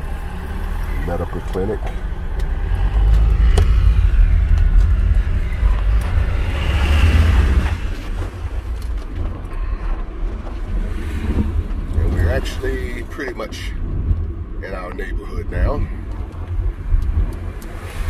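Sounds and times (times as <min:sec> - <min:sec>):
car road and engine rumble: 0:00.0 - 0:18.0.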